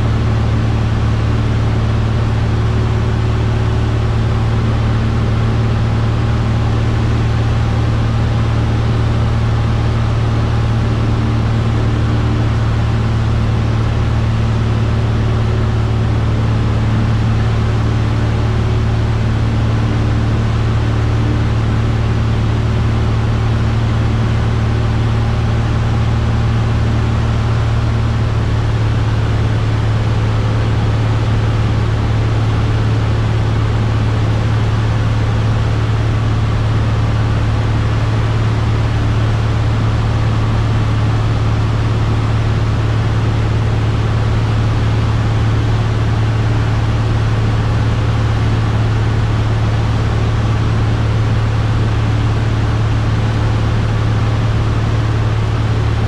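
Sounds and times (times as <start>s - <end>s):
airplane engine droning: 0.0s - 56.0s.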